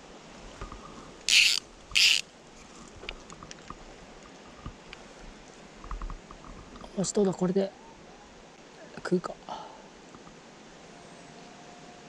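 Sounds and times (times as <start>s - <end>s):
fly reel ratchet buzzing: 1.3s - 2.2s.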